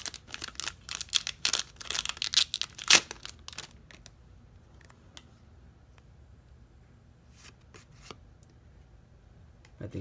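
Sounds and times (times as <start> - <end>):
foil wrapper crinkling and tearing: 0.0 - 4.1.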